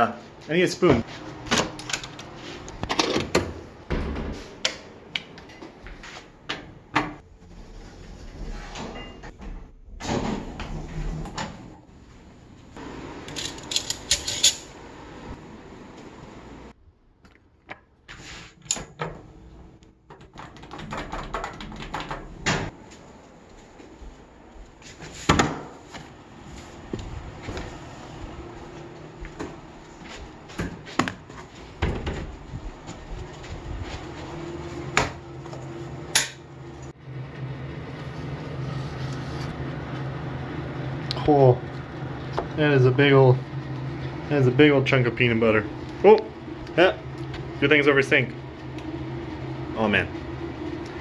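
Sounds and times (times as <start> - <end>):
footsteps: 22.7 - 35.7.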